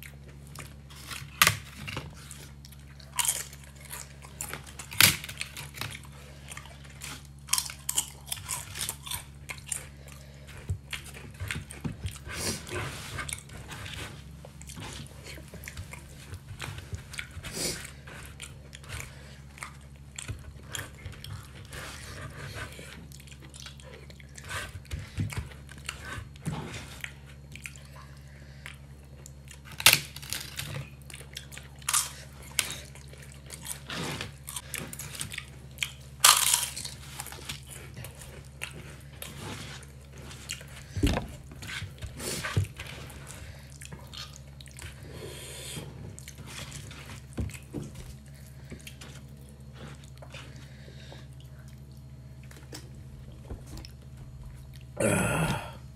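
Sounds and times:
person chewing and biting: 0.0s - 55.9s
steady low hum: 0.0s - 55.9s.

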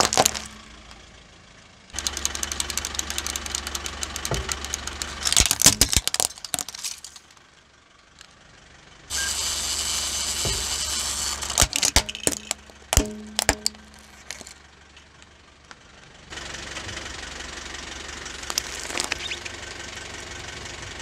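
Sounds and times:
plastic cracking under tyre: 0.0s - 0.6s, 1.9s - 7.4s, 10.5s - 14.6s, 18.4s - 19.5s
wind-up toy ticking: 2.0s - 5.3s.

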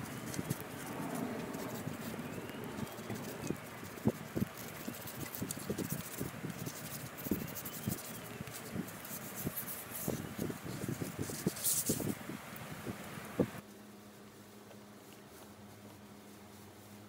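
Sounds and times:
sandpaper scratching on wood: 2.8s - 10.3s.

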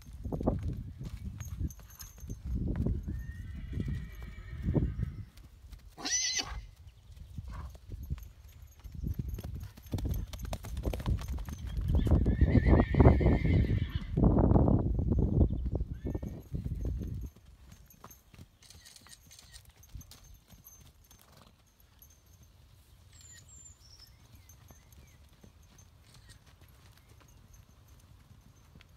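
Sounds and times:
hoofbeats on grass: 0.0s - 28.9s
horses whinnying: 3.1s - 5.2s, 6.0s - 6.7s, 12.0s - 14.2s.

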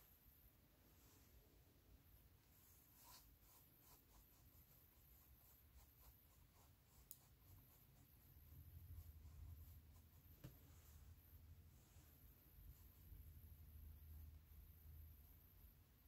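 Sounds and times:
paintbrush scratching and tapping: 2.5s - 11.2s.

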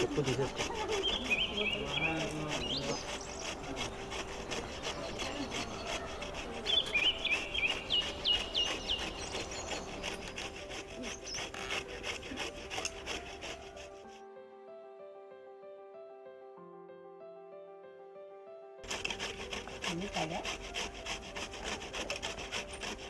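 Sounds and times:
gourd rasping on metal grater: 0.0s - 14.2s, 18.8s - 23.0s.

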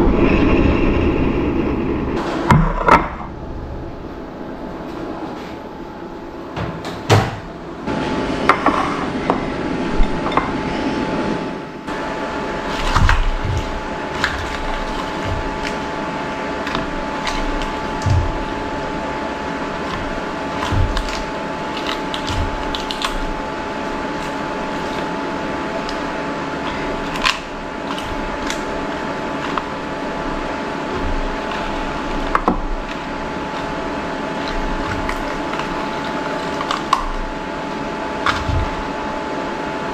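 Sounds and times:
steady hum: 0.0s - 39.9s
hands tearing lettuce leaves: 12.6s - 39.0s.

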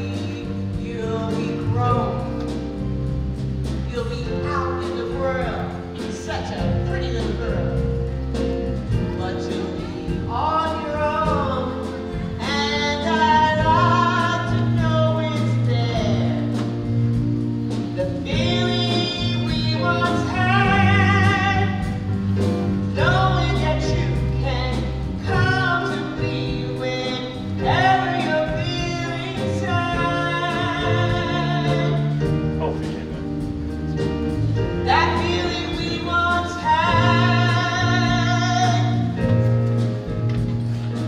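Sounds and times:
woman singing with vibrato: 0.0s - 2.4s, 8.9s - 16.6s, 17.8s - 32.3s, 34.6s - 39.4s.

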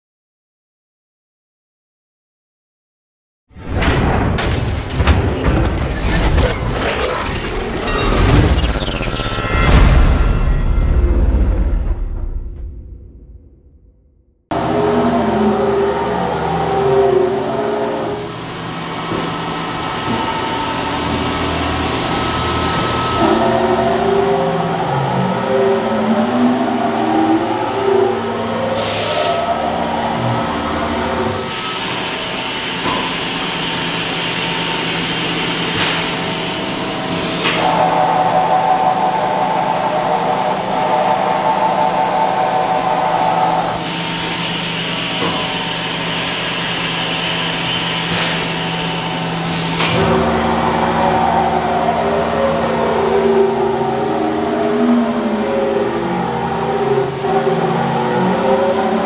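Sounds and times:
machine spindle whine: 14.5s - 59.0s.

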